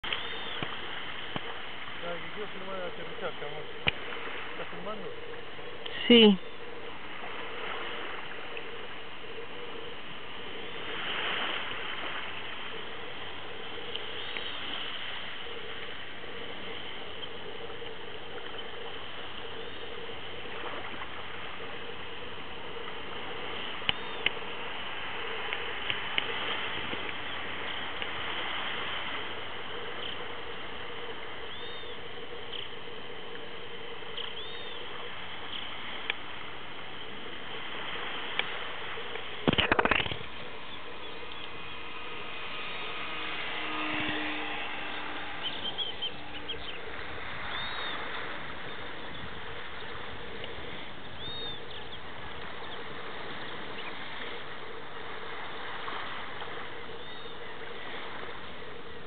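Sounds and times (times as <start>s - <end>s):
wind and sea hiss: 0.0s - 59.0s
distant electric motor hum: 37.2s - 59.0s.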